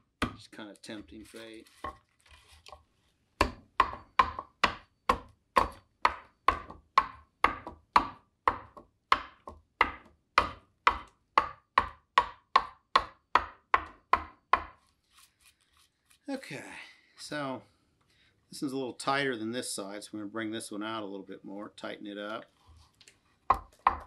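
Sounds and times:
adze chopping wood: 0.1 - 0.5, 3.4 - 14.8, 23.5 - 24.0.

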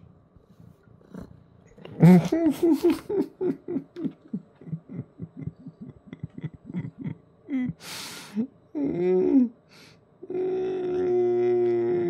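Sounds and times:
man chuckling softly: 1.9 - 7.8
sharp hissing breath out: 7.8 - 8.4.

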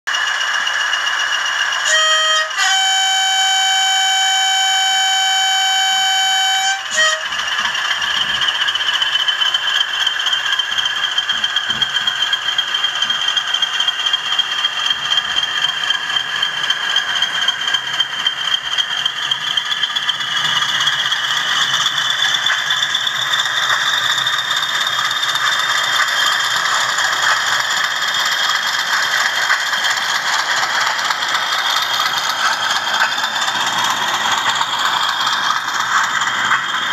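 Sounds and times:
diesel engine sound: 0.1 - 36.9
model locomotive horn: 1.8 - 7.4
rattle of model mechanisms: 7.5 - 36.9.

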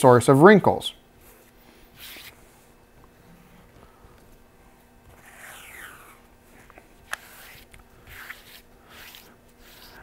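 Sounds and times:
palms sliding over tape: 5.0 - 10.0.

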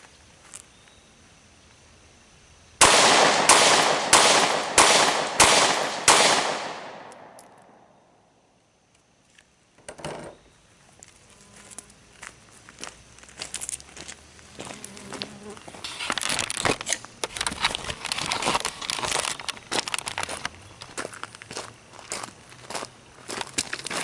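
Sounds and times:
pistol shots with echoes: 2.8 - 8.2.

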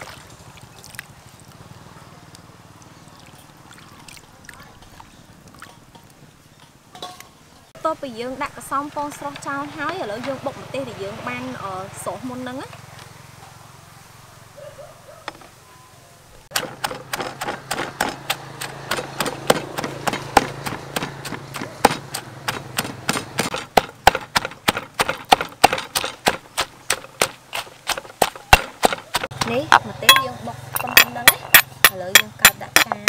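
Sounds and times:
stone pestle pounding in mortar: 16.5 - 33.0.

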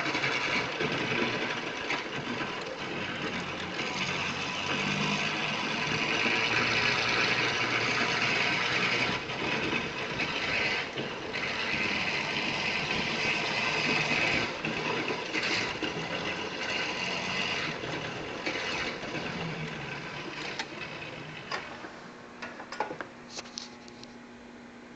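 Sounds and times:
utility vehicle running: 0.0 - 22.0.

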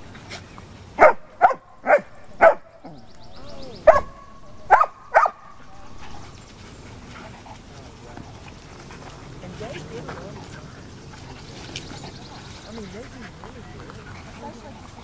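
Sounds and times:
dog barking: 1.0 - 2.7, 3.8 - 6.3.

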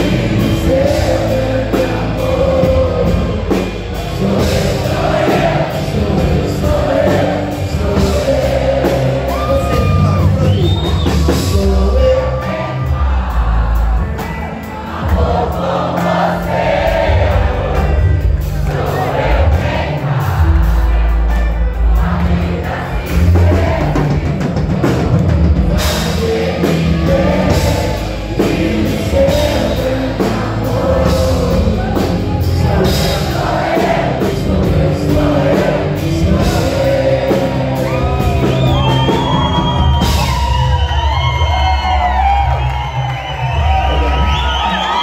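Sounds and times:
man singing: 0.0 - 19.8, 20.9 - 40.0
drum kit: 0.0 - 45.0
live band music: 0.0 - 45.0
audience cheering and whooping: 9.0 - 11.7, 37.6 - 45.0.

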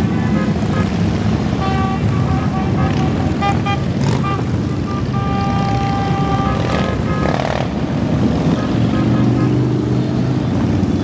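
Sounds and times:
motorcycles rumbling past: 6.4 - 11.0.

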